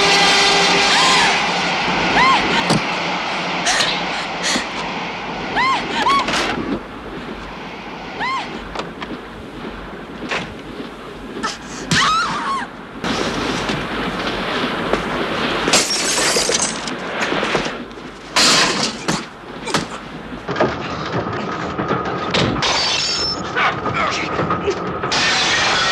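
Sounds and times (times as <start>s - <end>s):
glass shattering: 15.7s - 16.9s, 22.6s - 23.5s.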